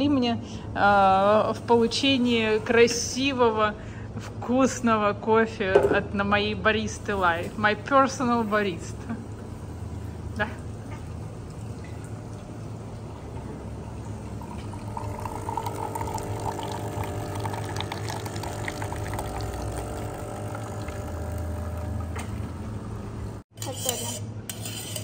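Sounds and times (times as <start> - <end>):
coffee machine humming: 7.2 - 23.5
coffee streaming into plastic jug: 14.1 - 22.5.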